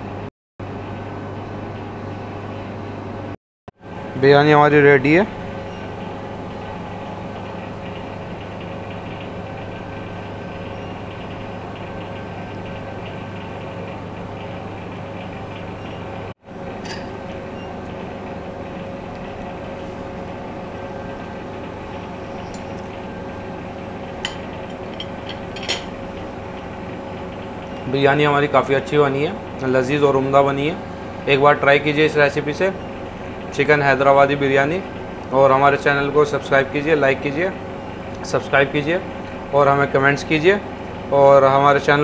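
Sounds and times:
ventilation fan humming: 0.0 - 42.0.

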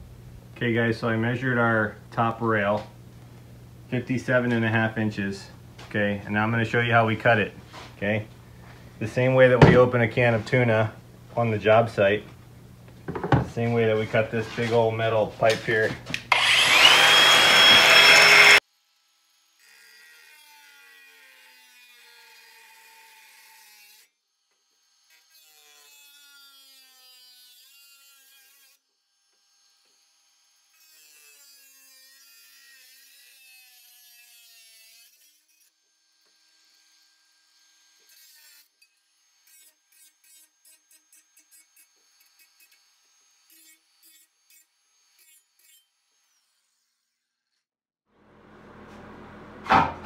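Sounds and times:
angle grinder running: 15.5 - 18.6.

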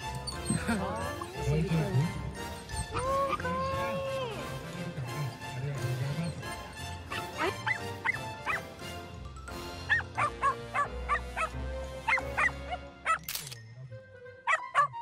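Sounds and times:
background music: 0.0 - 15.0
small dog barking: 7.1 - 8.6, 9.9 - 13.2.

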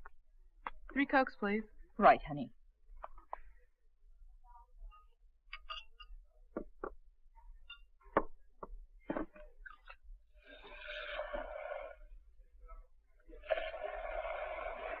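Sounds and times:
bottles and glasses clinking: 5.5 - 6.2.

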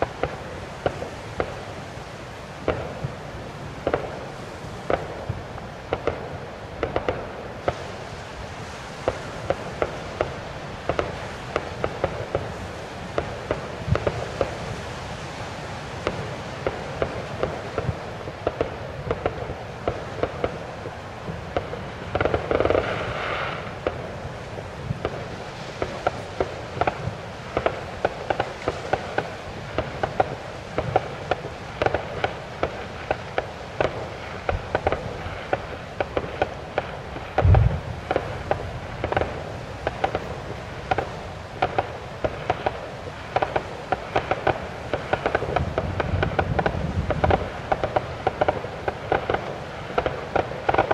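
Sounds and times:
fireworks bangs and crackles: 0.0 - 50.9
deep firework boom: 37.4 - 38.4.

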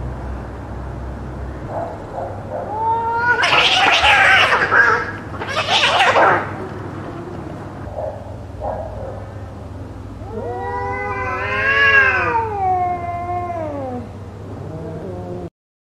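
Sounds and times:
cat yowling: 2.5 - 7.8, 10.2 - 15.5.

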